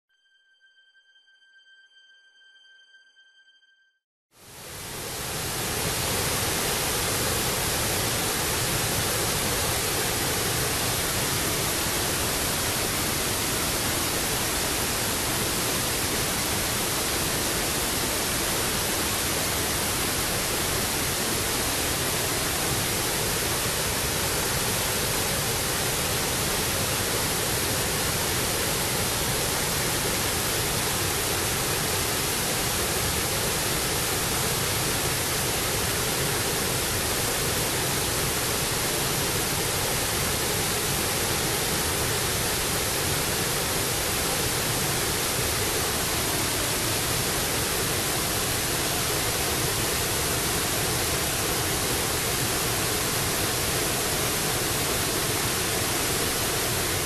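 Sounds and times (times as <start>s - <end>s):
waterfall rushing: 4.6s - 57.0s.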